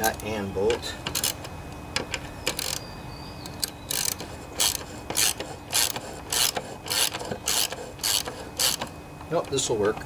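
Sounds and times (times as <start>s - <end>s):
ratchet wrench clicking: 2.5s - 2.8s, 3.6s - 8.9s.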